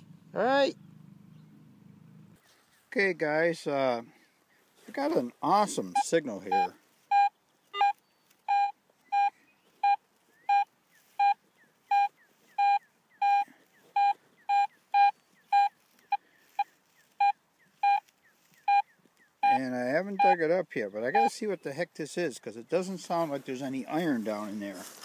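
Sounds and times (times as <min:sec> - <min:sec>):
metal detector short beeps: 0:05.9 - 0:15.8, 0:16.6 - 0:18.0, 0:18.6 - 0:20.4, 0:21.1 - 0:21.3.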